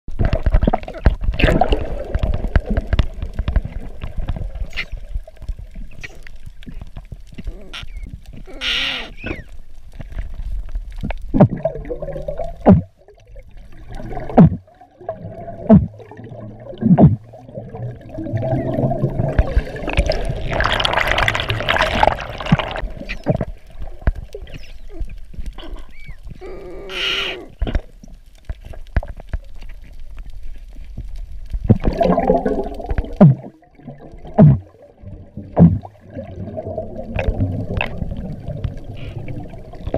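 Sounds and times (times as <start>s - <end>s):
air bubbles gurgling underwater: 0.1s - 8.5s, 10.9s - 27.9s, 31.4s - 39.9s.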